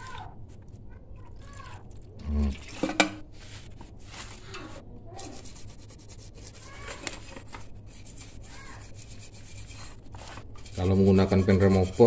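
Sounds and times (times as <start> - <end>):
small brush scrubbing paint: 3.3 - 12.0.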